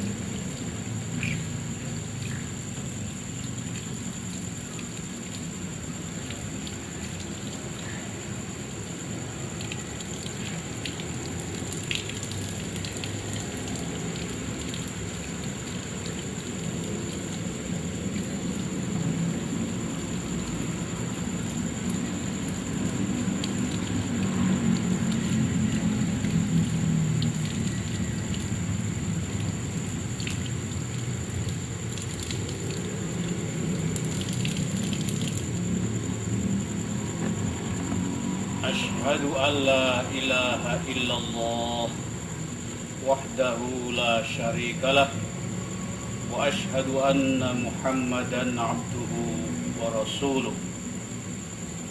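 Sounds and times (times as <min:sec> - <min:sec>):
tap water running: 0:00.0 - 0:38.2
water splashing into plastic basin: 0:00.0 - 0:42.5.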